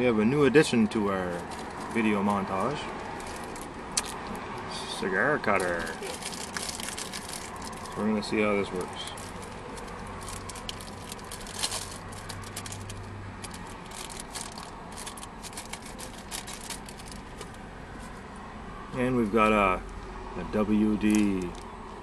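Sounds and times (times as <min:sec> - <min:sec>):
hands handling packaging: 0:01.4 - 0:04.2, 0:05.4 - 0:08.0, 0:08.8 - 0:18.2.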